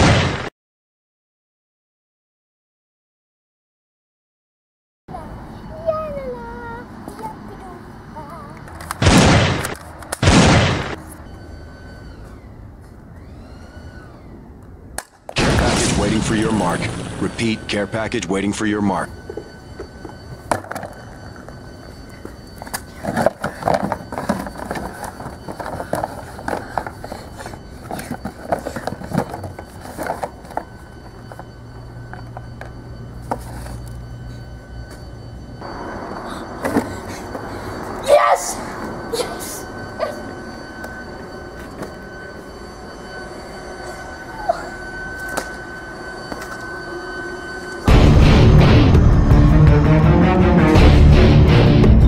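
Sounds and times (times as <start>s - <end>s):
high-pitched whine: 5.1s - 52.0s
loud music: 47.9s - 52.0s.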